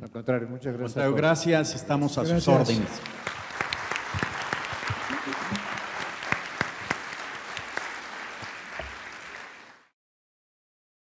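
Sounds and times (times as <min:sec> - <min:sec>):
audience applauding: 0:02.5 - 0:10.0.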